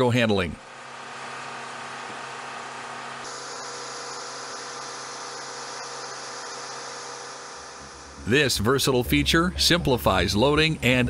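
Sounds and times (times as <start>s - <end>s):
machinery hum and hiss: 0.0s - 11.0s.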